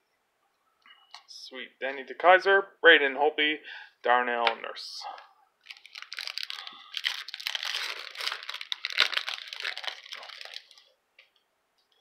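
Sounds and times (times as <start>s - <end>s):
wrapper tearing and crinkling: 5.6s - 10.9s.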